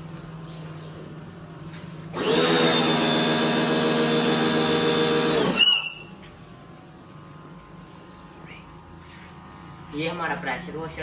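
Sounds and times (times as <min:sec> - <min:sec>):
pressure washer motor humming: 0:02.1 - 0:06.0.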